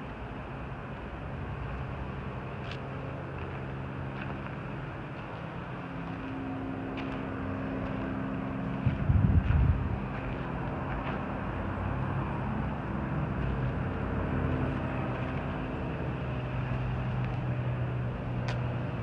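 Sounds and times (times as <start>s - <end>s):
low engine hum: 0.0s - 19.0s
street traffic: 0.0s - 19.0s.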